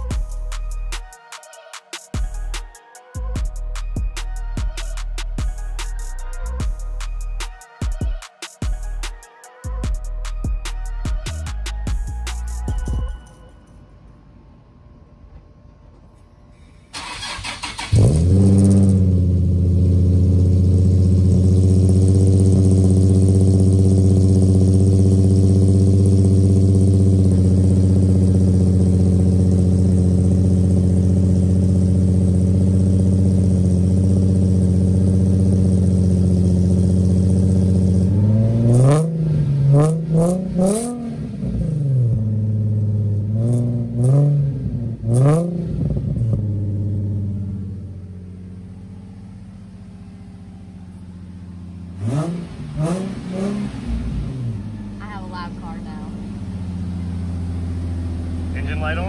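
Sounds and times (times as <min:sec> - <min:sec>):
car engine idling: 0:00.0 - 0:01.2, 0:17.0 - 0:59.0
engine revving: 0:17.0 - 0:59.0.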